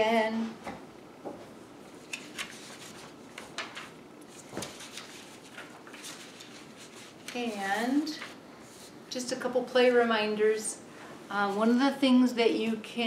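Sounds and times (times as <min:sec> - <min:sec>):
printer paper rustling: 0:02.0 - 0:08.9.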